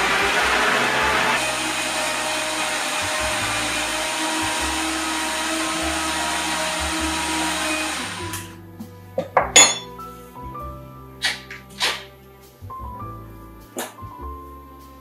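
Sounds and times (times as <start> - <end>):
blender running: 0.0 - 8.5.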